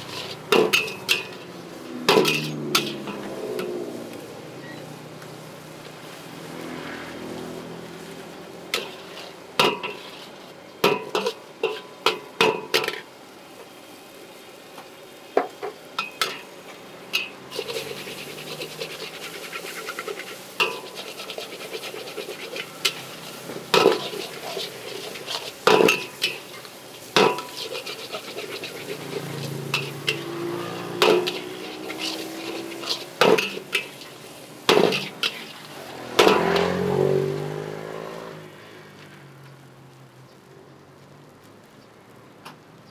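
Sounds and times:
steady sizzle: 0.0 - 42.9
metal spatula clanging against wok: 0.1 - 1.4, 2.1 - 3.7, 8.7 - 10.1, 10.8 - 13.0, 17.1 - 18.0, 20.6 - 21.5, 22.2 - 34.1, 34.7 - 35.5, 36.2 - 36.8.

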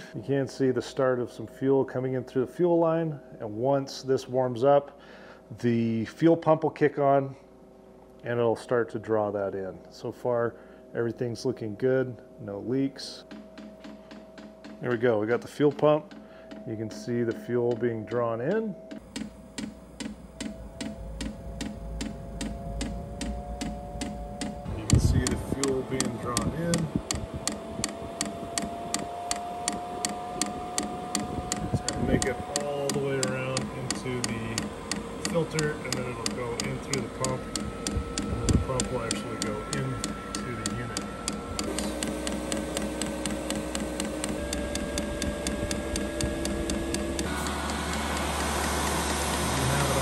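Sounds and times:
steady hum: 0.0 - 50.0
fuel pump ticking: 13.3 - 18.0, 18.9 - 50.0.

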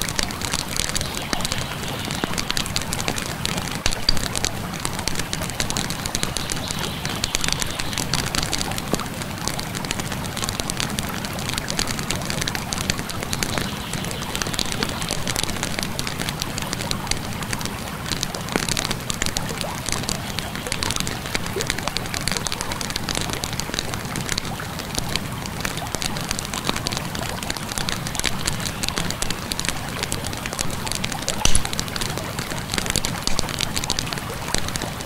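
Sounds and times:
bonfire crackling and popping: 0.0 - 35.0
river water flowing: 0.0 - 35.0.

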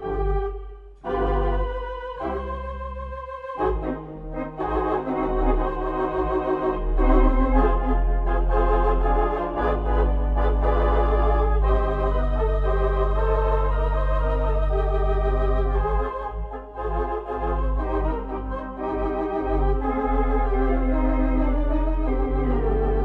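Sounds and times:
organ chords: 0.0 - 23.0.

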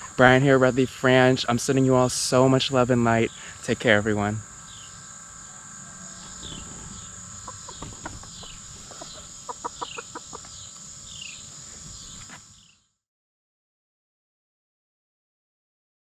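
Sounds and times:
high insect trill: 0.0 - 13.0
chickens clucking: 4.7 - 12.4.

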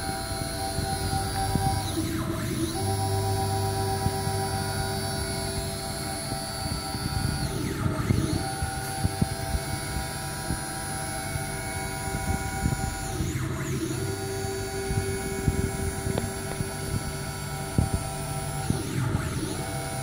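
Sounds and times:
stepper motors whining: 0.0 - 20.0.

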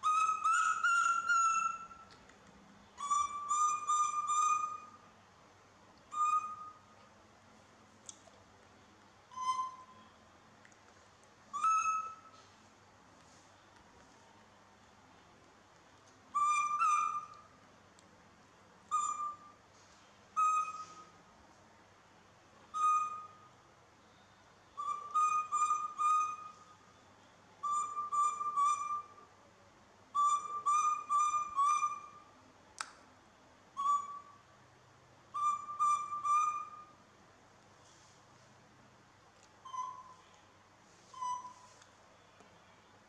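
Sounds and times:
baby monkey high coo calls: 11.5 - 12.3.

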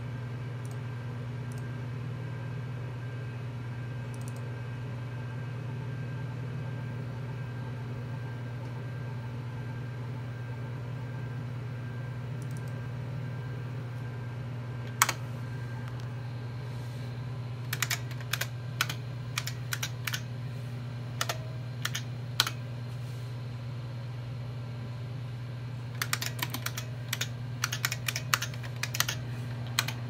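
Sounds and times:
computer hum: 0.0 - 30.0
keyboard keystrokes: 14.9 - 15.2, 17.7 - 20.2, 21.2 - 22.6, 26.0 - 30.0.

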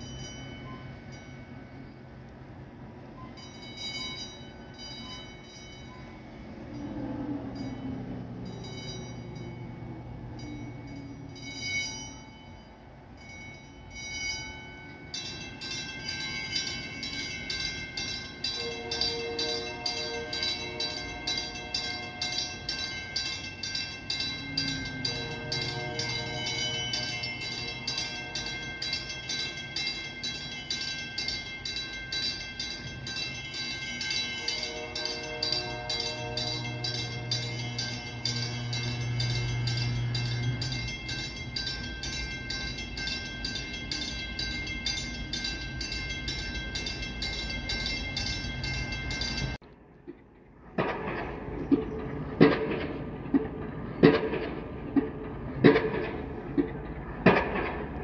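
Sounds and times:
lift bridge warning bells ringing: 0.0 - 49.7, 50.7 - 58.0
low machinery hum: 18.4 - 32.0, 33.0 - 58.0.

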